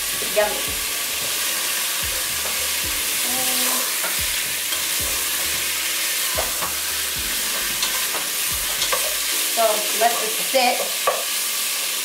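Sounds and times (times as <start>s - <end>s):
meat sizzling in oil: 0.0s - 12.0s
spatula scraping a pot: 3.6s - 9.3s.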